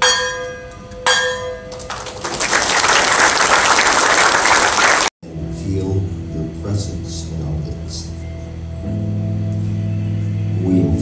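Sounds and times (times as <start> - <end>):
bell ringing: 0.0 - 2.0
audience applause: 1.8 - 5.1.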